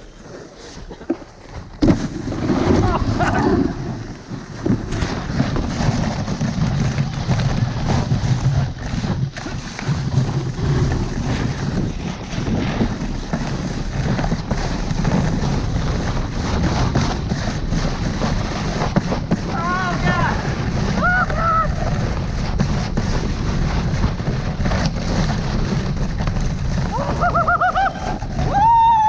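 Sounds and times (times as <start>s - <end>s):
sled runners scraping over snow: 0.0s - 29.0s
sled knocking on bumps: 0.9s - 29.0s
wind buffeting microphone: 10.0s - 29.0s.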